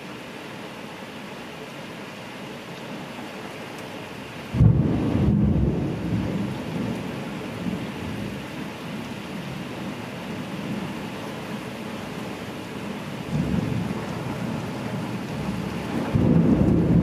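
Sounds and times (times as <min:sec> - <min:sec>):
heavy rain hissing: 0:00.0 - 0:17.0
thunderclap rumbling: 0:04.5 - 0:08.4, 0:13.2 - 0:17.0.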